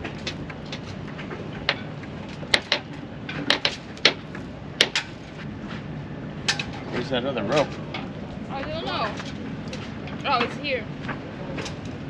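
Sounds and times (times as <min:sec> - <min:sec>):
sharp clicks and knocks: 0:00.0 - 0:05.4
low background rush: 0:00.0 - 0:12.0.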